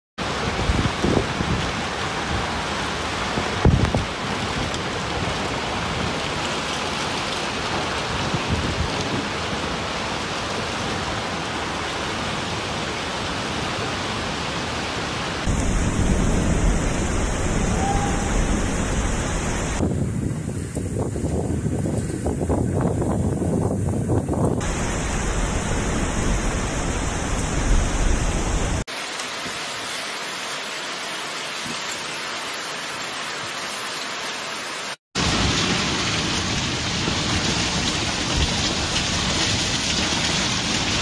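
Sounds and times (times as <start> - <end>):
heavy rain hissing: 9.6 - 19.8, 24.6 - 41.0
wind buffeting microphone: 15.5 - 28.8.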